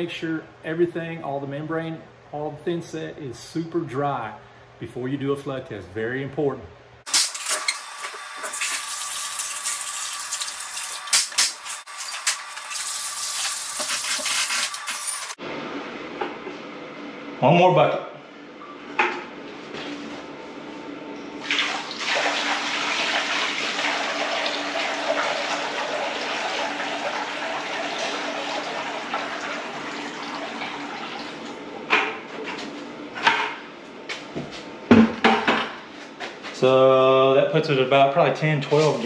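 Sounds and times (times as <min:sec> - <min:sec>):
water pouring into shower tray: 0:08.4 - 0:15.4, 0:21.4 - 0:31.1.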